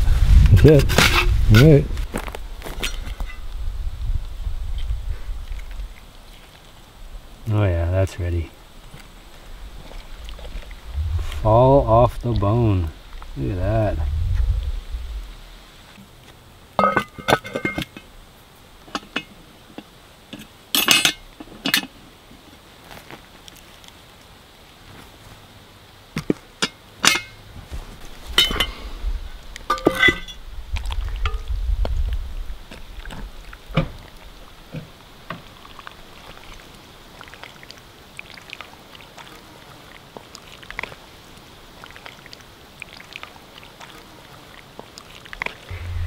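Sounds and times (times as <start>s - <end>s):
broth sloshing: 8.5s - 16.1s
metal pot handle and lid clinking: 16.8s - 18.0s, 20.8s - 21.9s, 29.7s - 30.4s.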